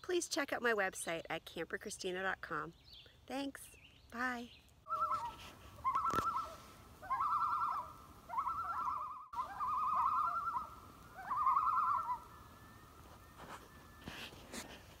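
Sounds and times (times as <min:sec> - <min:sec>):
bird wavering calls: 0:04.9 - 0:14.1.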